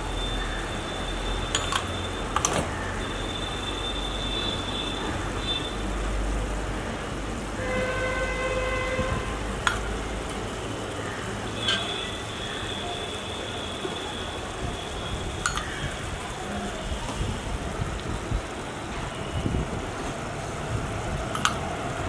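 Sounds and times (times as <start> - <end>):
steady background noise: 0.0 - 22.0
cup and spoon clinking on pan: 1.5 - 1.9
vehicle horn: 7.6 - 9.5.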